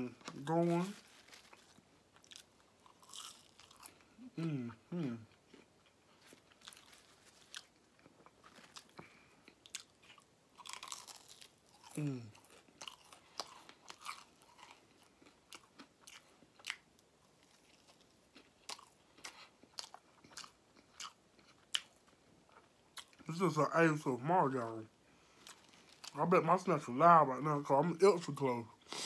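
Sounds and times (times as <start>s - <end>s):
crunchy chewing: 0.2s - 4.1s, 5.2s - 23.3s.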